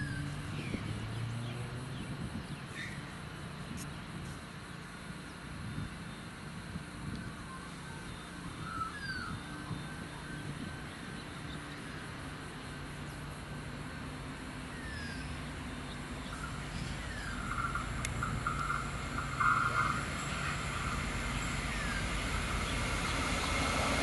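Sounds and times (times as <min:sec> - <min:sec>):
locomotive engines low hum: 0:00.0 - 0:24.0
bird chirps: 0:14.7 - 0:20.0.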